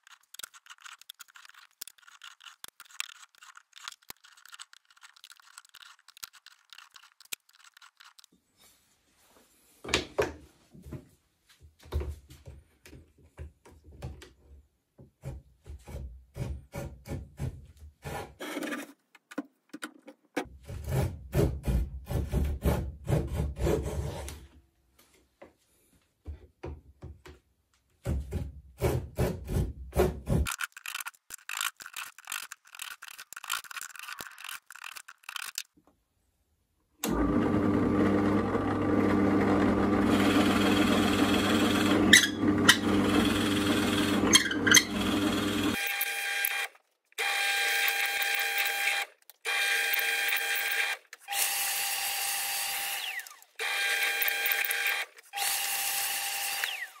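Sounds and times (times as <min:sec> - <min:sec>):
drill press humming: 0:37.1 - 0:57.0
drill bit boring into wood: 0:40.1 - 0:57.0.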